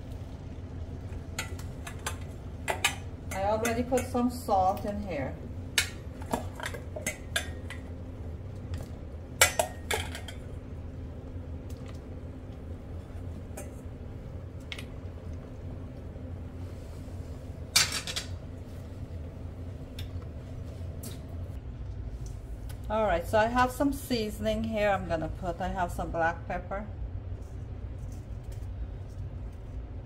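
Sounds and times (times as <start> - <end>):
steady low hum: 0.0 - 30.0
pots and utensils clinking: 1.3 - 4.4, 5.7 - 7.9, 9.4 - 10.6, 17.7 - 18.4.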